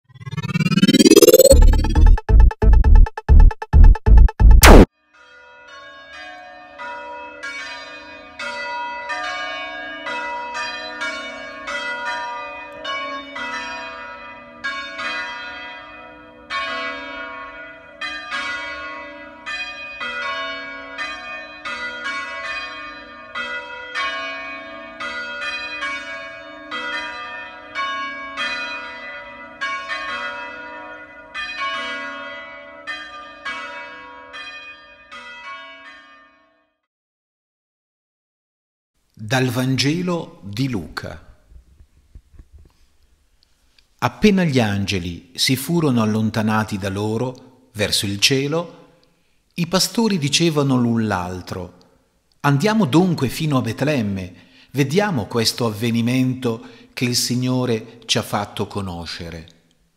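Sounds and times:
church bells ringing: 5.2 - 36.5.

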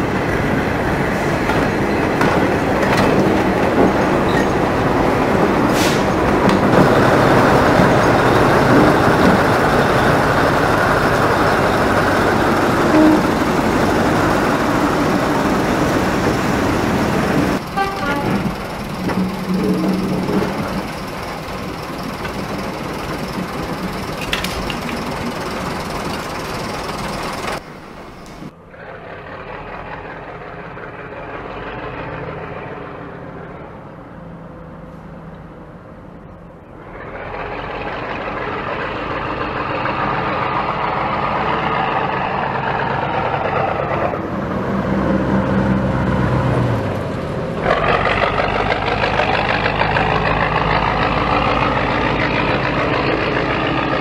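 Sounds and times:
diesel locomotive engine running: 0.0 - 54.0.

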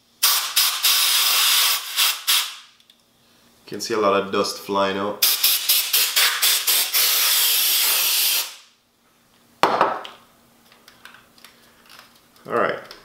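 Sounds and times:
compressed air duster spraying: 0.2 - 2.6, 5.2 - 8.6.

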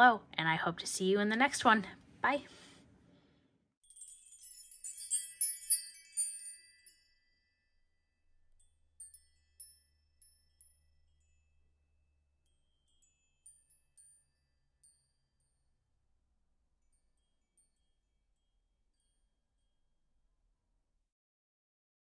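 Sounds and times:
tinkling chime-like music: 3.8 - 20.6.

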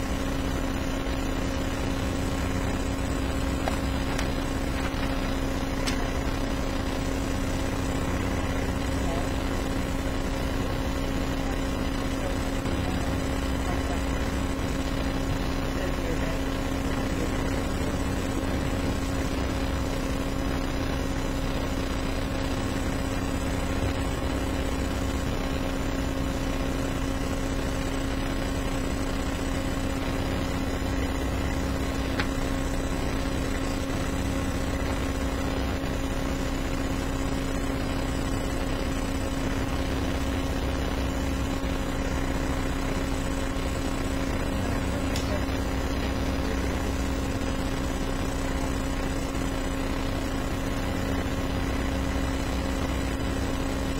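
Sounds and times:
steady background hum: 0.0 - 53.9.

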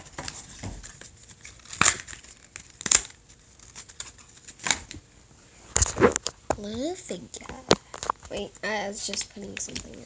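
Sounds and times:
packaging crinkling and tearing: 0.1 - 5.0.

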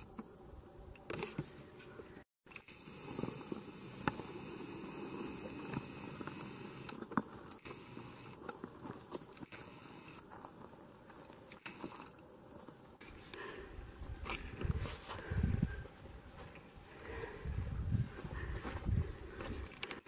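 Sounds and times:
handling noise rustling and clicks: 19.4 - 20.0.

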